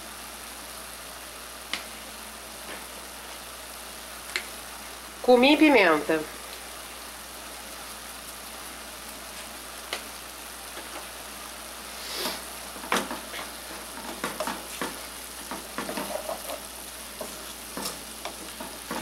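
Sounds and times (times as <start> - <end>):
meat sizzling in a pot: 0.0 - 19.0
wooden spoon scraping a pot: 15.5 - 19.0.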